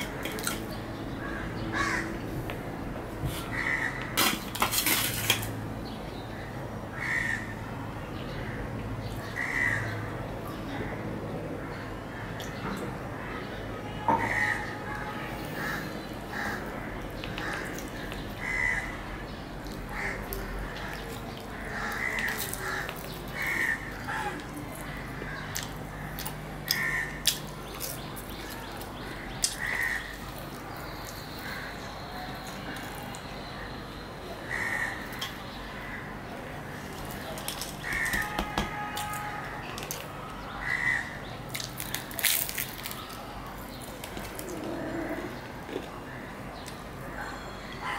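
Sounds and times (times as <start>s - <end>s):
crows cawing: 1.2s - 2.2s, 3.5s - 4.1s, 6.9s - 7.6s, 9.3s - 10.0s, 14.1s - 14.8s, 15.6s - 17.8s, 18.4s - 19.1s, 19.9s - 26.1s, 26.7s - 27.3s, 29.2s - 30.2s, 34.5s - 35.1s, 37.8s - 39.6s, 40.6s - 41.2s
fried bread crackling: 19.6s - 33.4s, 36.6s - 40.2s, 41.4s - 44.6s
crisp crunching bite: 21.9s - 23.5s, 41.5s - 44.7s.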